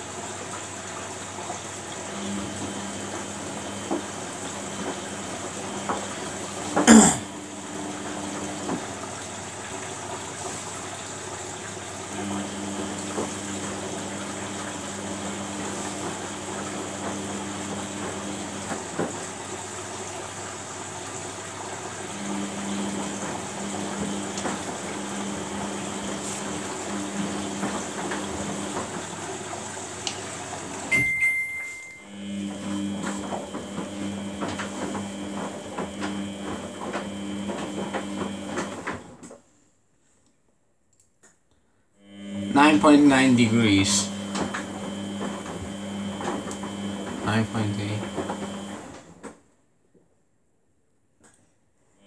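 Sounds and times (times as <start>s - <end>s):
water and laundry sloshing: 0.0s - 39.2s, 42.5s - 49.2s
washing machine motor humming: 0.0s - 39.3s, 42.0s - 49.4s
click with short high tone: 30.9s - 32.0s.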